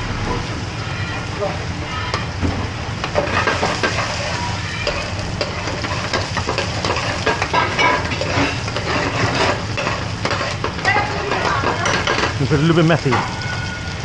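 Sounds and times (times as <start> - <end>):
onions sizzling in frying pan: 0.0 - 14.0
ladle scraping and clinking pan: 3.2 - 12.4.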